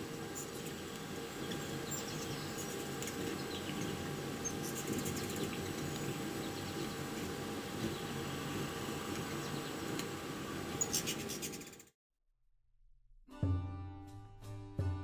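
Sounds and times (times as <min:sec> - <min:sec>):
steady hum: 0:00.0 - 0:11.9
hummingbird chirps and ticks: 0:00.2 - 0:11.9.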